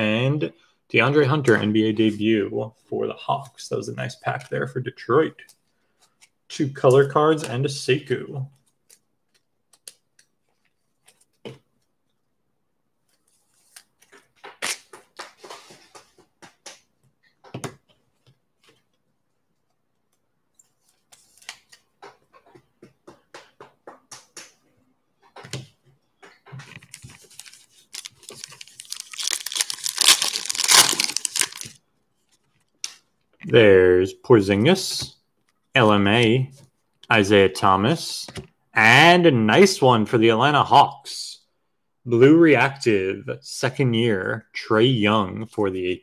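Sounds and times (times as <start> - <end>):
foil pack tearing and crinkling: 27.0 - 31.8.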